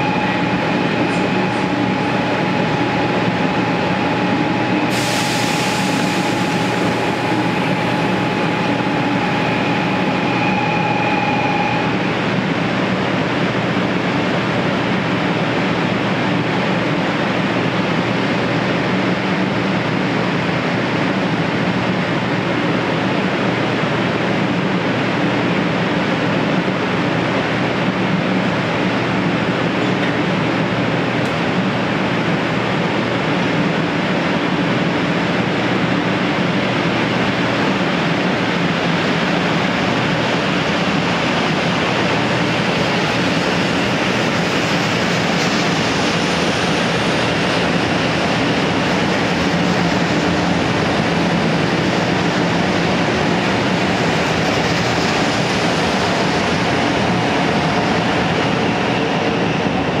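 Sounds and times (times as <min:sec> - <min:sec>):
train passing: 0:00.0 - 0:24.6, 0:25.2 - 1:00.0.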